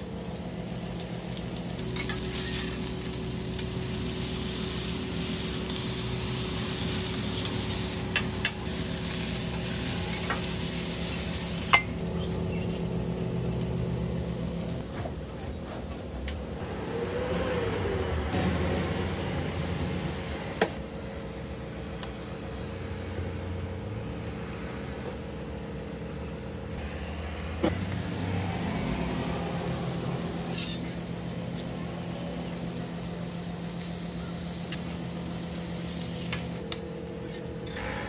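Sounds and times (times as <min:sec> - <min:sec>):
meat sizzling on a griddle: 0:00.2 - 0:14.8, 0:28.0 - 0:36.6.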